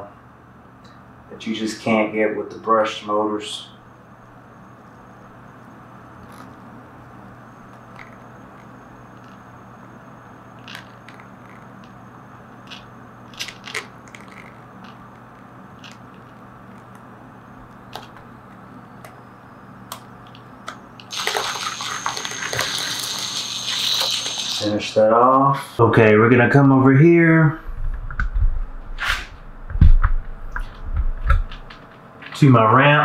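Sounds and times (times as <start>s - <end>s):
burst of rough noise: 21.1s - 24.7s
toy car motor hum: 21.1s - 24.7s.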